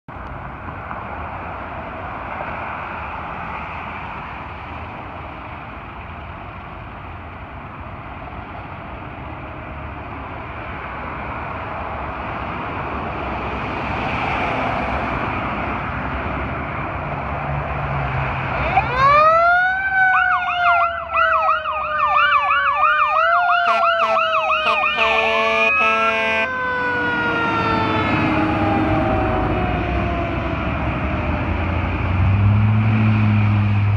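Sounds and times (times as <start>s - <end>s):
street traffic: 0.1s - 33.9s
electronic siren yelping: 18.5s - 31.3s
mechanical siren wailing: 18.5s - 31.9s
air horn blasts: 23.6s - 26.6s.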